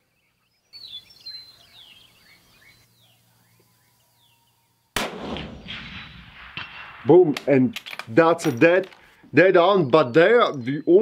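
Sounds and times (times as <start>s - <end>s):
coyotes yipping and howling: 0.3s - 5.0s
rifle shot: 5.0s - 7.8s.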